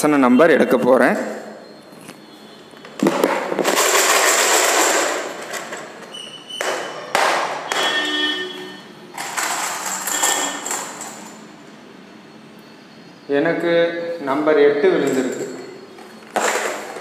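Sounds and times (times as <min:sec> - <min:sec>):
coins rattling in plastic box: 0:03.6 - 0:06.0, 0:09.2 - 0:11.4.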